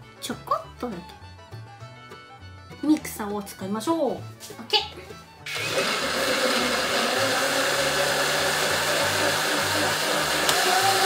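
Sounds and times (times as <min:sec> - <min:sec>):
electric blender running: 0:05.5 - 0:11.0.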